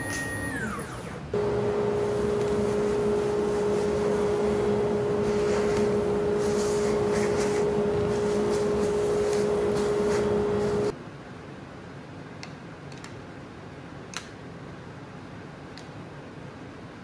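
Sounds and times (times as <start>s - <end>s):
dust collector whining: 0.0s - 10.9s.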